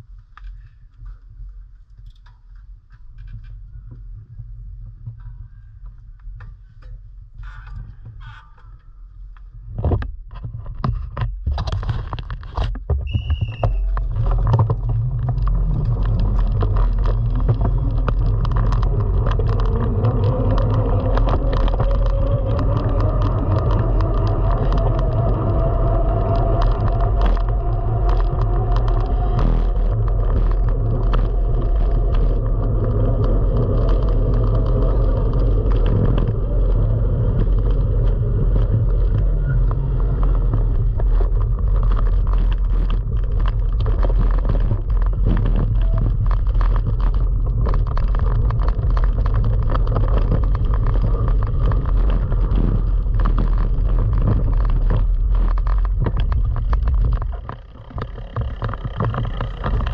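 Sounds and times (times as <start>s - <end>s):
wind on microphone: 9.5s - 59.9s
tyres rumbling on track: 13.2s - 59.9s.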